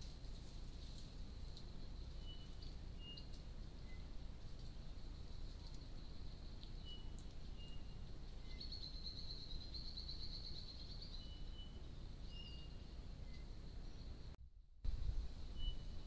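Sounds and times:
low background noise: 0.0s - 16.0s
thin bird notes: 1.6s - 14.3s.

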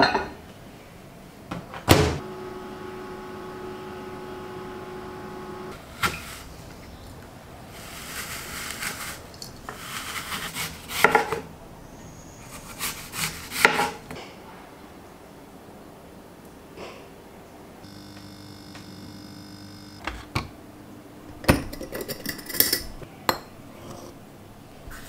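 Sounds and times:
microwave oven humming: 1.9s - 5.8s, 17.8s - 20.3s.

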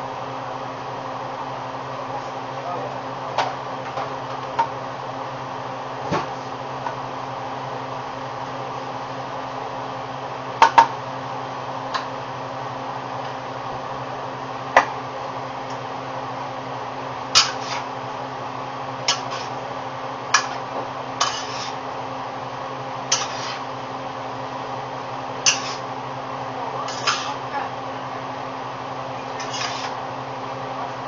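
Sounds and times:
steady background hum: 0.0s - 31.0s
metal tongs clanking on pan: 25.5s - 25.8s.

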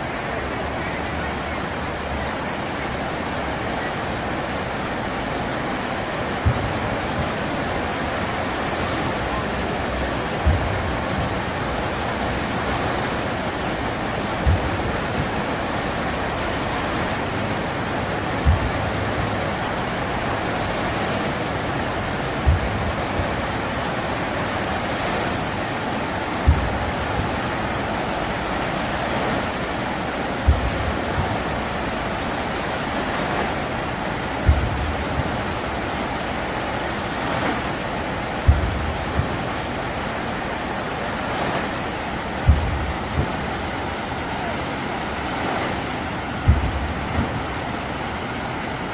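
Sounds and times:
fountain water splashing: 0.0s - 48.9s
short low thump: 38.4s - 39.4s, 42.4s - 43.5s, 46.4s - 47.7s.

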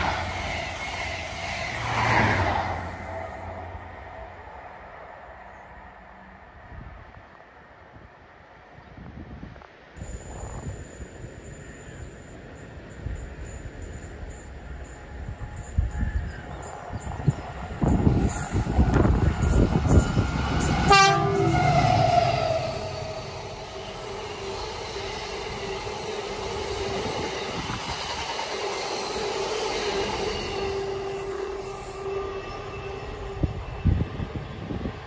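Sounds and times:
locomotive rumble: 12.4s - 35.0s
train horn: 18.5s - 24.5s, 29.9s - 34.8s.

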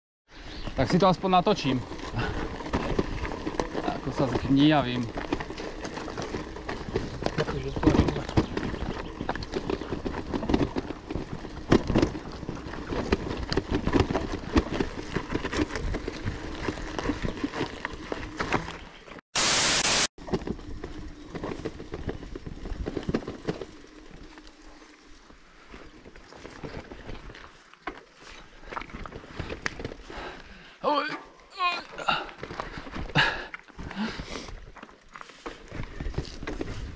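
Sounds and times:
bike rattling over gravel: 0.6s - 19.2s, 20.2s - 30.6s, 32.2s - 36.9s
tyres crunching on stones: 1.0s - 30.1s
loud hiss burst: 19.4s - 20.1s.

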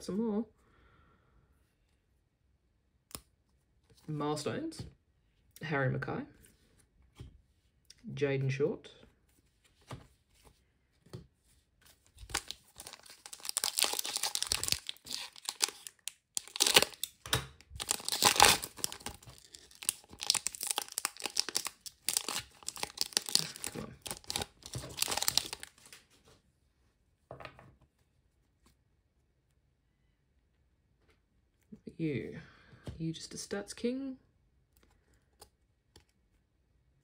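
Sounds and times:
foil wrapper crinkling and tearing: 12.1s - 26.0s.

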